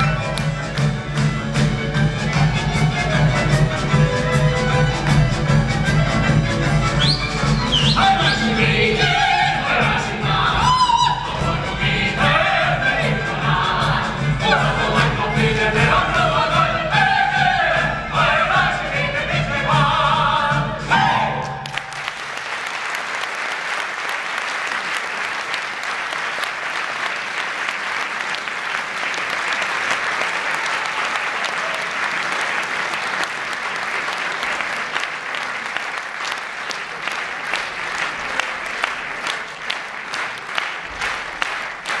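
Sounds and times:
audience applauding: 21.5s - 42.0s.

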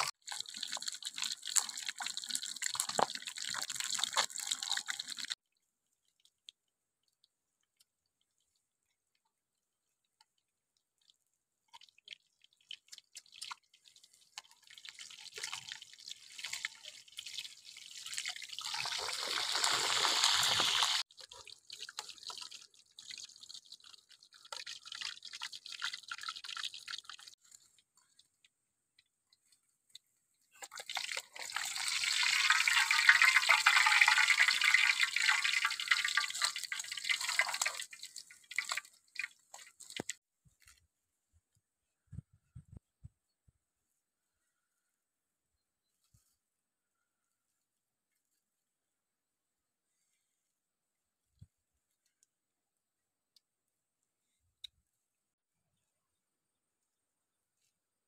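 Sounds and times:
oil sizzling and crackling: 0.0s - 5.4s, 11.6s - 27.4s, 30.6s - 40.2s.

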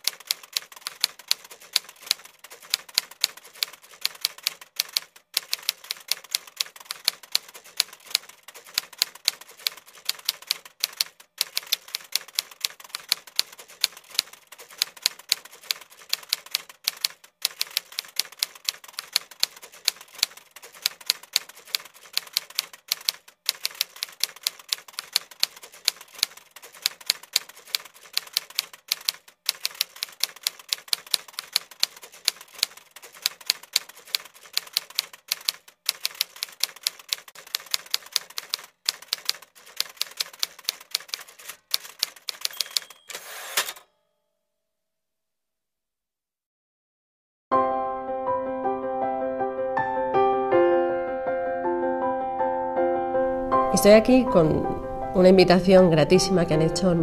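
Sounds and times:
typewriter keys clacking: 0.0s - 43.8s.

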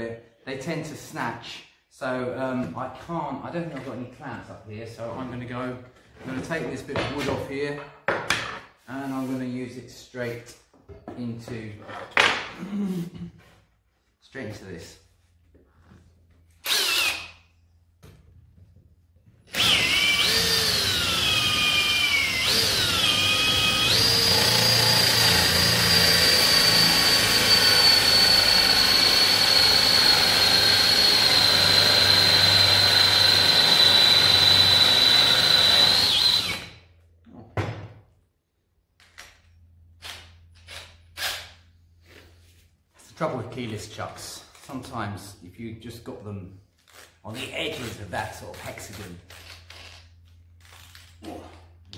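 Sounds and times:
drill with hole saw cutting wood: 16.6s - 17.4s, 19.5s - 36.8s.

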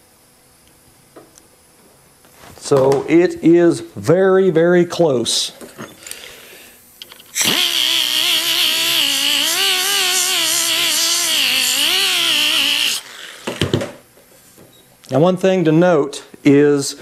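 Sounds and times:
air angle grinder on steel: 7.3s - 13.1s.

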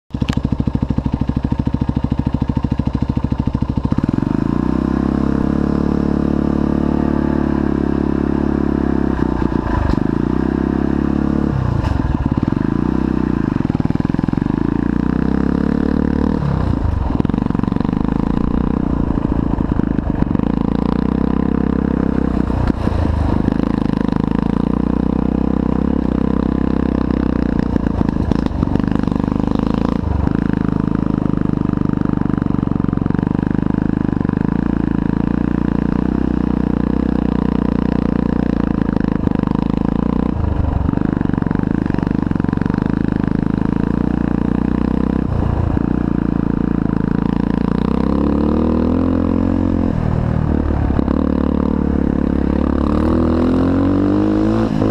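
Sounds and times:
dirt bike engine revving: 2.6s - 31.2s, 41.4s - 54.9s.

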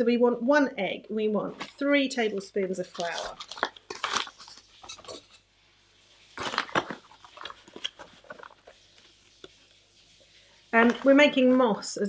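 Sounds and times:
paper bag rustling: 1.6s - 5.4s, 6.3s - 9.8s.

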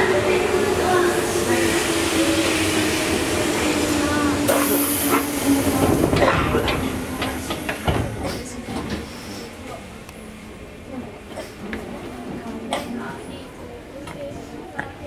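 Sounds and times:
electric train whine: 0.0s - 8.2s.

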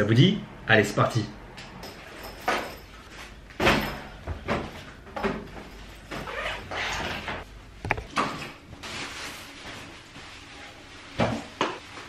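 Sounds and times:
handling rustles and knocks: 1.8s - 10.2s.

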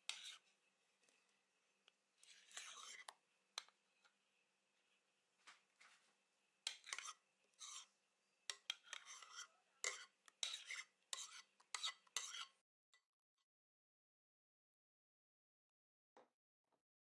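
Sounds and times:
scraping cream from bowl: 0.0s - 0.5s, 2.2s - 3.8s, 6.6s - 7.9s, 8.5s - 12.6s.

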